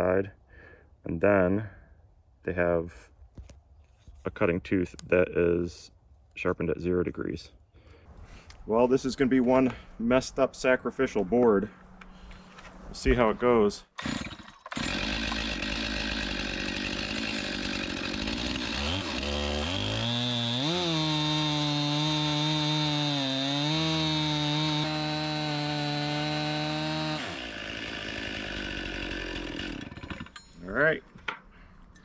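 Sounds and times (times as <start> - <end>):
chainsaw idling and revving: 14.0 - 30.4.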